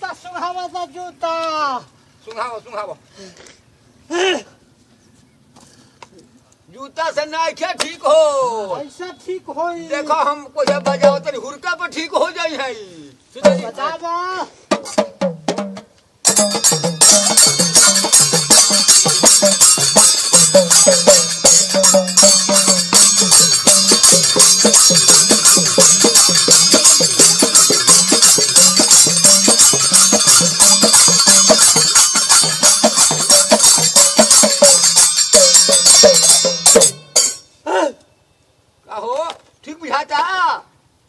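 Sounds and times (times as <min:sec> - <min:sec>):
hourglass drum folk rhythm: 0:10.5 - 0:11.5, 0:13.3 - 0:37.8
metallic jingling rattle: 0:16.2 - 0:37.6.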